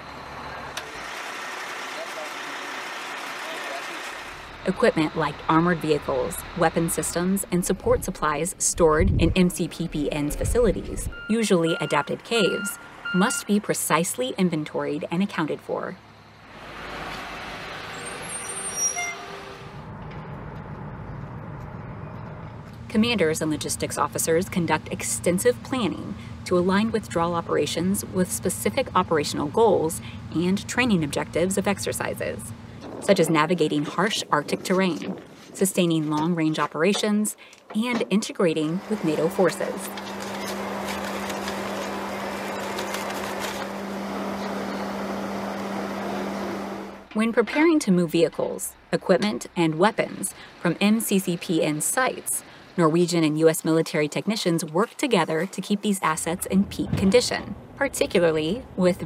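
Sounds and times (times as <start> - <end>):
truck engine running: 0.0 - 35.1, 37.8 - 54.3
brief high squeal: 18.0 - 19.3.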